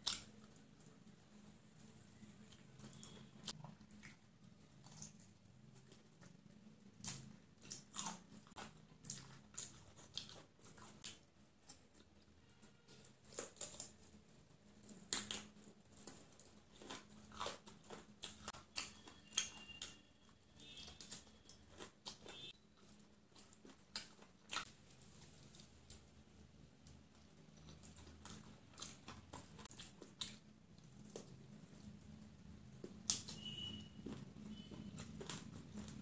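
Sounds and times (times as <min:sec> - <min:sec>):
chewing crispy fried food: 0:00.0 - 0:36.0.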